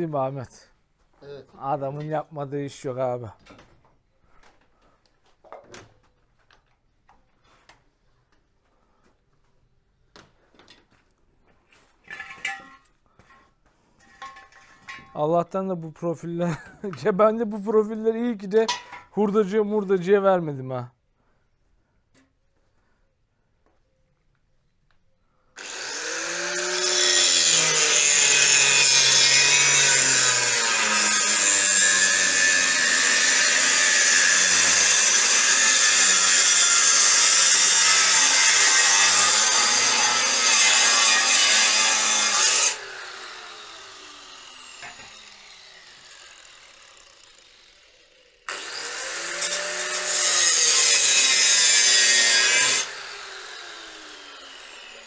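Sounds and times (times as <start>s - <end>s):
angle grinder cutting steel: 25.6s - 55.0s.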